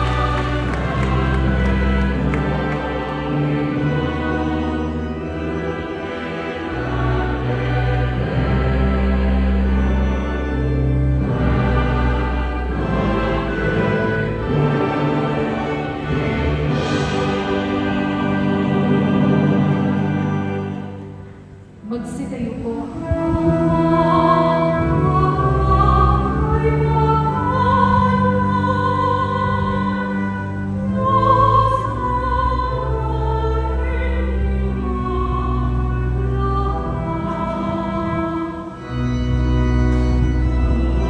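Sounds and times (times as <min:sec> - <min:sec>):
instrumental accompaniment: 0:00.0 - 0:41.0
woman singing: 0:21.8 - 0:38.8.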